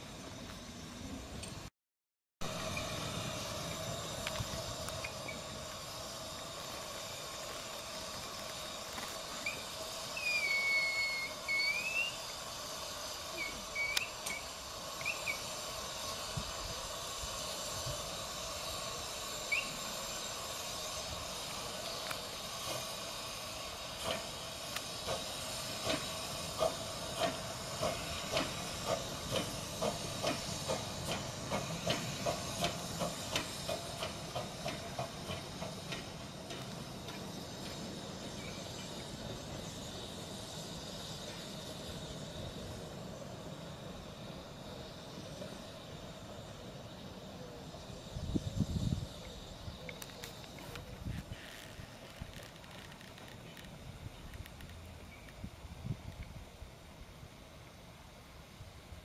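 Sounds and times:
regular clicking of train: 0:00.0 - 0:01.7, 0:02.4 - 0:59.0
steam locomotive hissing: 0:00.0 - 0:01.7, 0:02.4 - 0:59.0
brief squeal: 0:09.4 - 0:12.2.

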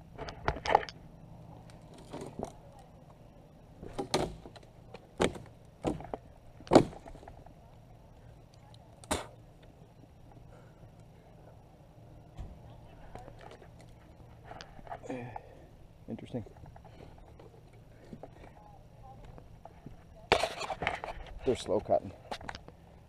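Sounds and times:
faint low hum: 0:00.0 - 0:23.0.

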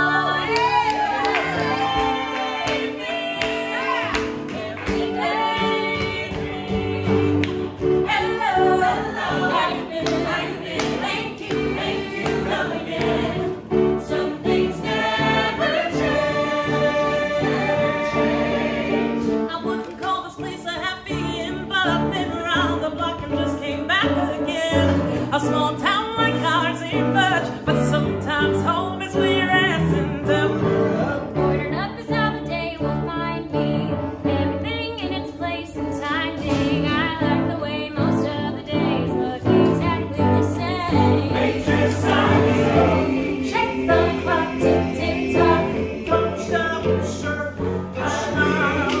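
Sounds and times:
mixed choir singing in harmony: 0:00.0 - 0:19.5, 0:28.9 - 0:31.7, 0:39.1 - 0:49.0.

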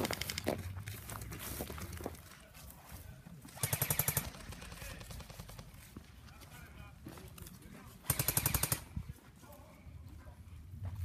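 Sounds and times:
automatic rifle fire: 0:03.6 - 0:05.1, 0:08.1 - 0:08.9.

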